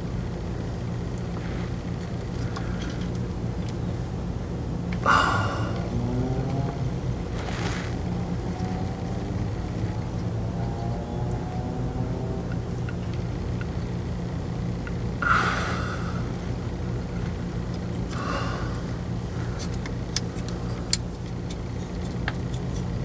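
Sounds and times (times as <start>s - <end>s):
steady low hum: 0.0s - 23.0s
scraping rustles: 7.3s - 8.0s.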